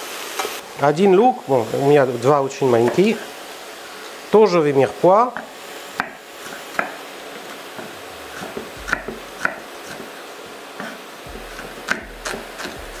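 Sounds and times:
frying sizzle: 0.0s - 13.0s
knife chopping on wooden board: 5.4s - 10.1s, 10.8s - 13.0s.

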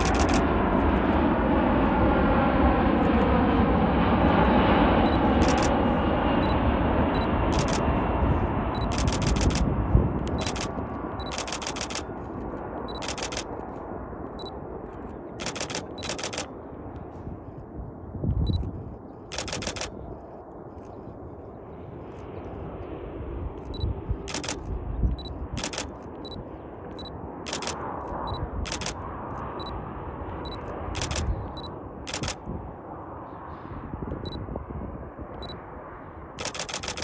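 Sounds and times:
camera shutters firing: 0.0s - 0.4s, 5.4s - 5.8s, 7.6s - 7.9s, 8.8s - 9.7s, 10.3s - 12.1s, 12.9s - 13.6s, 15.4s - 16.5s, 19.3s - 20.0s, 24.3s - 24.7s, 25.6s - 26.0s, 27.5s - 27.8s, 28.7s - 29.0s, 31.0s - 31.4s, 32.1s - 32.4s, 36.4s - 37.0s
distant jet landing rumble: 0.0s - 37.0s.

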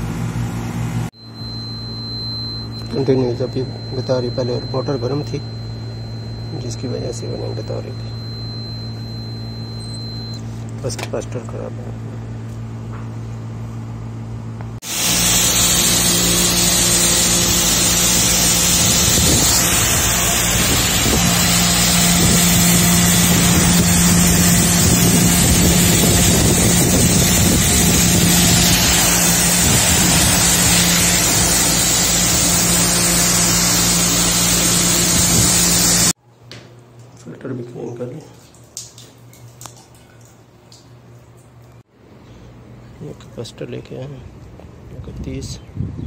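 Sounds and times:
pressure washer motor hum: 1.2s - 11.0s, 14.8s - 36.2s
water spray hissing: 14.8s - 36.1s.

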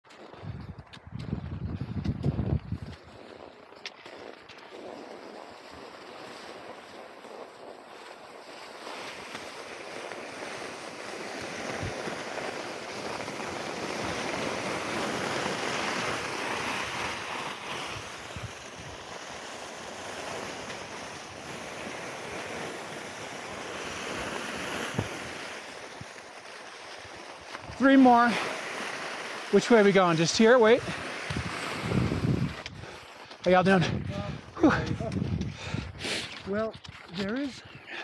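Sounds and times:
wind on microphone: 0.2s - 8.0s, 10.4s - 26.2s, 27.0s - 38.0s
skis hissing over snow: 2.9s - 33.6s, 36.0s - 36.7s.

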